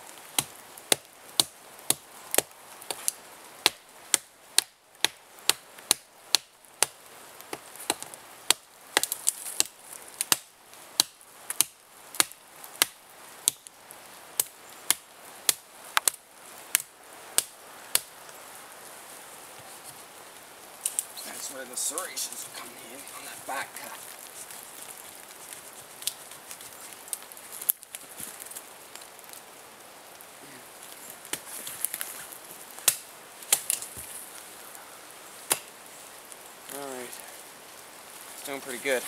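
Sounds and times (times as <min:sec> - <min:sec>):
knife chopping wood: 0:00.4 - 0:03.0, 0:35.5 - 0:35.7.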